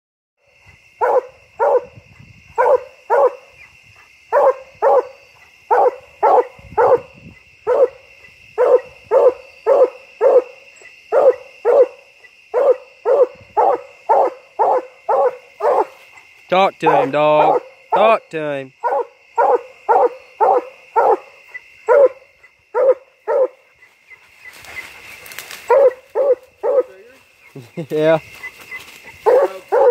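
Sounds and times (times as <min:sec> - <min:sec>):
dog barking: 0:01.0 - 0:02.0, 0:02.6 - 0:03.5, 0:04.3 - 0:08.0, 0:08.6 - 0:15.9, 0:16.8 - 0:17.8, 0:18.8 - 0:23.6, 0:25.7 - 0:26.9, 0:29.2 - 0:29.9.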